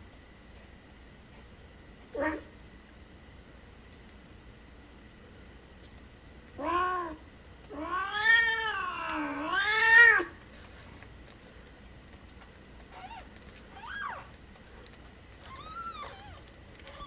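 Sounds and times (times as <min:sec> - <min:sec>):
cat yowling: 0:06.6 - 0:10.4, 0:13.0 - 0:14.4, 0:15.4 - 0:17.0
faint high cries: 0:12.9 - 0:14.4, 0:15.4 - 0:17.0.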